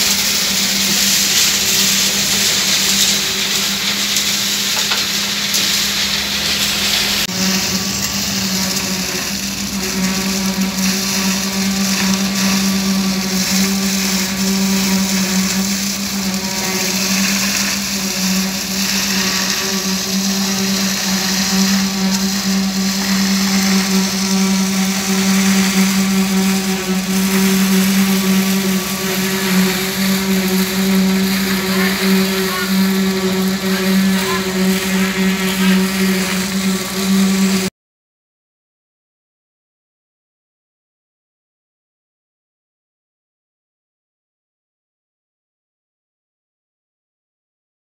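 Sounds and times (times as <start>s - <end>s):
diesel engine drone: 0.0s - 37.7s.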